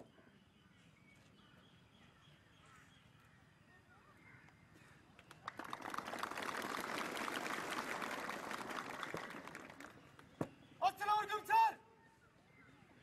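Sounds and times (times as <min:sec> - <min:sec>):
crowd applauding: 0:05.3 - 0:10.2.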